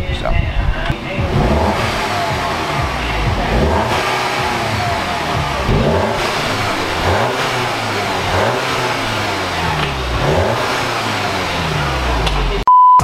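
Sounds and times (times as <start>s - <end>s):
car engine revving: 0.8s - 12.6s.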